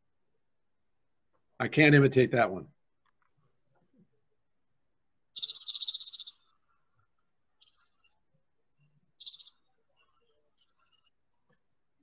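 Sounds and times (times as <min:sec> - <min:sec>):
sparrow singing rapid trill: 0:05.3 - 0:06.6, 0:07.6 - 0:08.2, 0:08.8 - 0:11.2.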